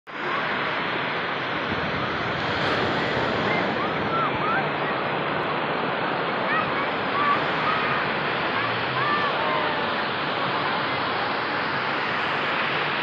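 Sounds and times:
ocean surf rushing: 0:00.1 - 0:13.0.

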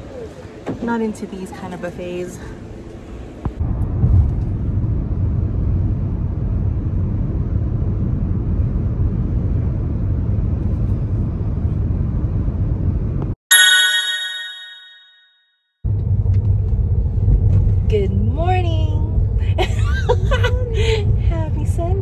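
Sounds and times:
car road rumble inside cabin: 0:15.9 - 0:22.0.

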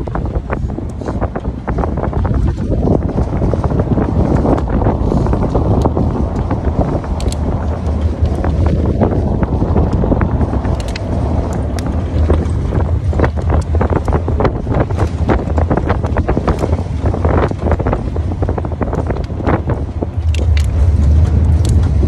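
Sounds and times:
truck and tyres rumbling on road: 0:00.0 - 0:22.0
wind buffeting microphone: 0:00.0 - 0:22.0
sharp clicks and knocks: 0:18.8 - 0:22.0.

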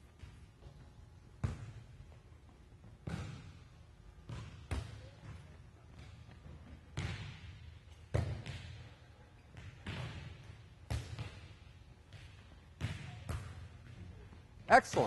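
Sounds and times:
volleyball smacks with echo: 0:07.0 - 0:08.8, 0:09.5 - 0:14.0.

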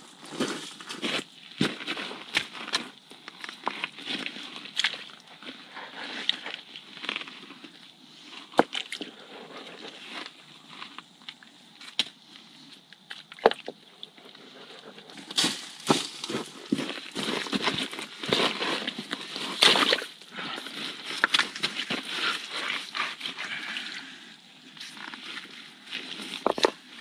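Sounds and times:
boots splashing through water: 0:04.6 - 0:05.2
stones knocking: 0:15.2 - 0:18.5, 0:26.4 - 0:26.8.

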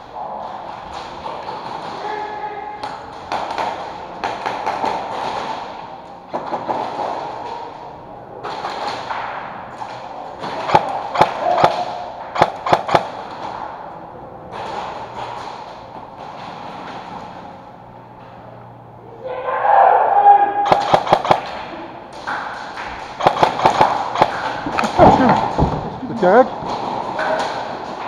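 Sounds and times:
airsoft gunshots: 0:10.4 - 0:13.2, 0:20.6 - 0:21.7, 0:23.1 - 0:25.5.

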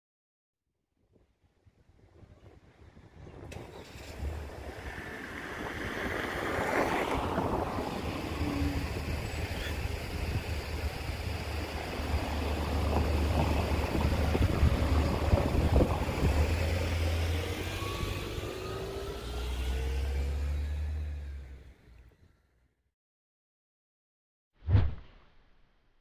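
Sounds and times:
wind rumbling on microphone: 0:01.6 - 0:18.5
car engine accelerating: 0:03.4 - 0:22.3.

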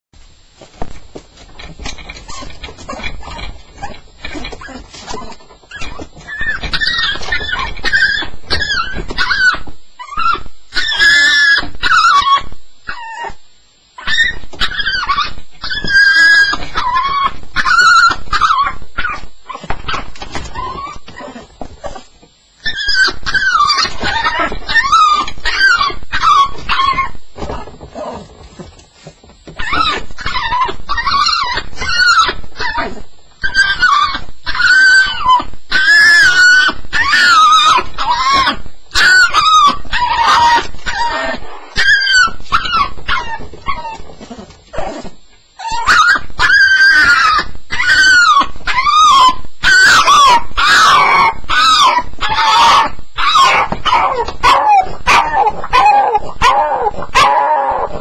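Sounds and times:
dog whining and yelping: 0:01.6 - 0:13.4, 0:14.0 - 0:28.7, 0:29.5 - 0:58.0.

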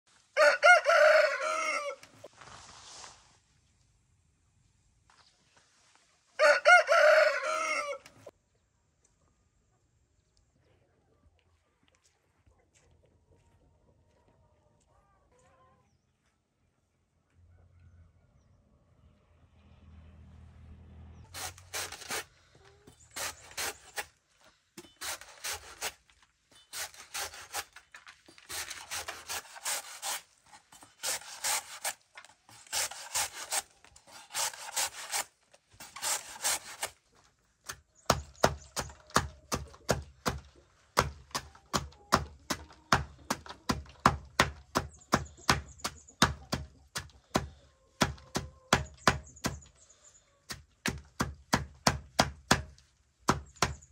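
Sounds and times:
saw rasping strokes: 0:21.3 - 0:24.2, 0:24.8 - 0:37.0.

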